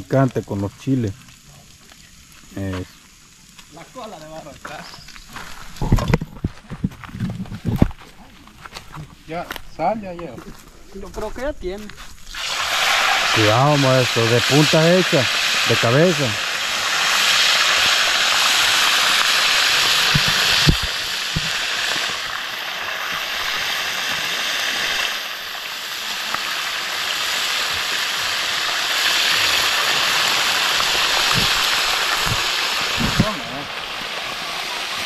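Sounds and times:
fish deep-frying in hot oil: 12.2s - 35.0s.

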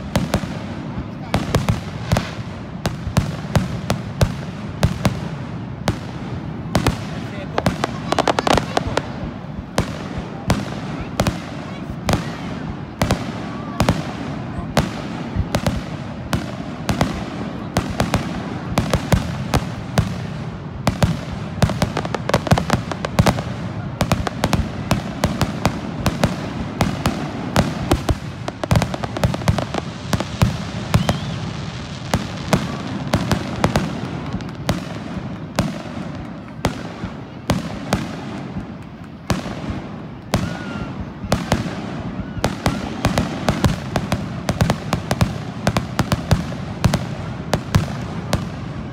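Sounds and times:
fireworks bangs: 0.0s - 48.9s.

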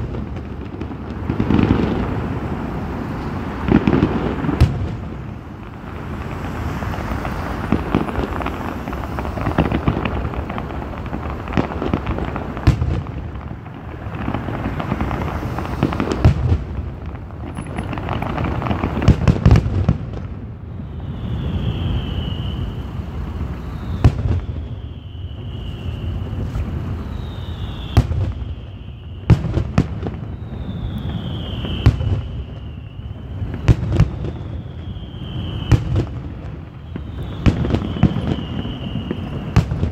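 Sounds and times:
firework shells bursting with bangs: 0.0s - 20.5s
fireworks crackle and rumble: 0.0s - 39.9s.

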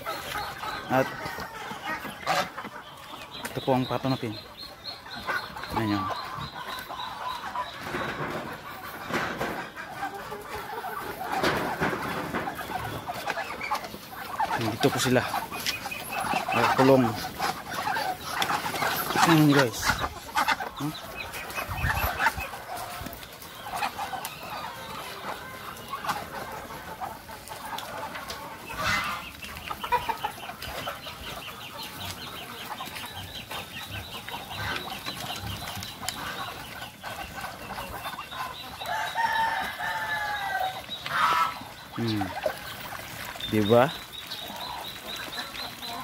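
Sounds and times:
chickens clucking: 0.0s - 46.0s
rooster crowing: 38.9s - 40.8s.

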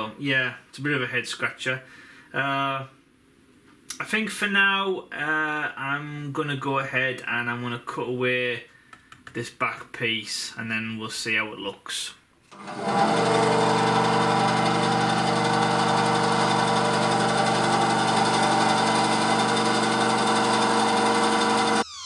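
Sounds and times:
bandsaw motor hum: 12.5s - 21.9s.

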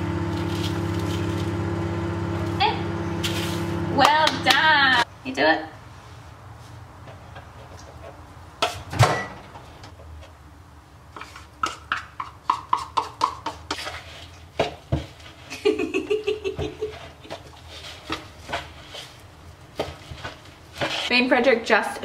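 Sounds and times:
spoon scraping plastic bowl: 11.2s - 14.4s.

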